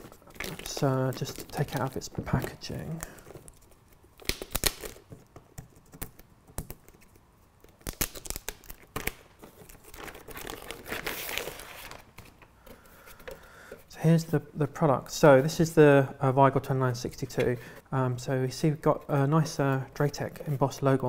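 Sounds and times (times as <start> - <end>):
plastic bag crinkling: 0.0 - 3.7, 7.8 - 12.4.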